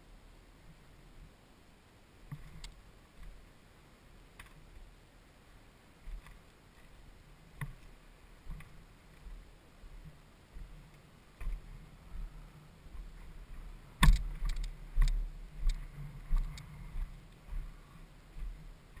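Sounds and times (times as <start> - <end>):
wind rumble on microphone: 6.0 - 19.0.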